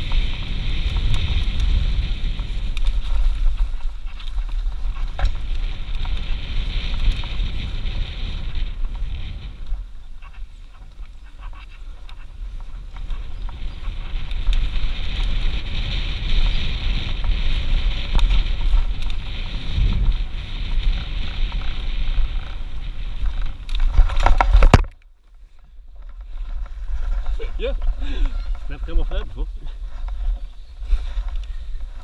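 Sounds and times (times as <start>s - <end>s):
tyre noise on dirt: 0.0s - 24.8s
wind buffeting microphone: 0.0s - 24.9s, 25.6s - 32.0s
bike rattles and knocks: 0.0s - 29.3s.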